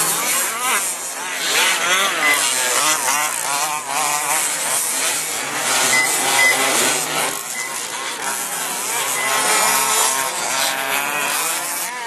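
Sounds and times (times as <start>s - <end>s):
rc truck motors revving: 0.0s - 12.0s
short high beep: 1.8s - 3.2s, 5.4s - 10.5s.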